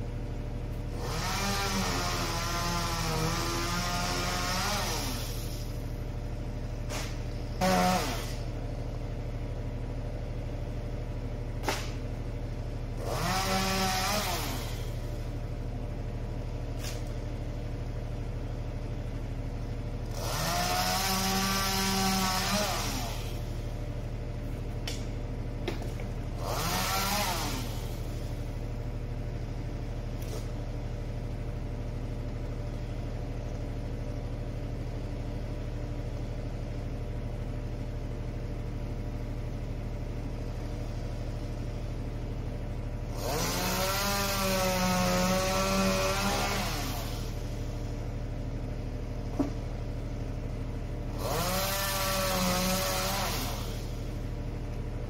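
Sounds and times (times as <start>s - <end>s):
chainsaw revving: 0.9s - 5.8s, 6.9s - 8.5s, 13.0s - 15.1s, 20.0s - 23.7s, 26.3s - 28.4s, 43.0s - 47.7s, 51.0s - 54.2s
truck engine running: 14.4s - 44.1s, 45.6s - 55.0s.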